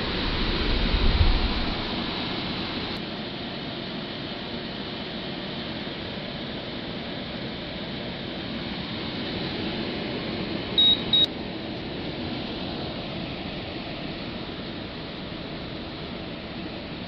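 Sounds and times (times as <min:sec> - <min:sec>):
air conditioner fan running: 0:00.0 - 0:17.0
control panel beeps: 0:10.8 - 0:11.3.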